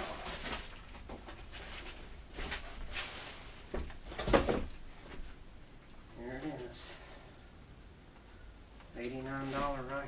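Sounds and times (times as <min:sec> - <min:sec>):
cardboard and wrapping rustling: 0:00.0 - 0:05.3.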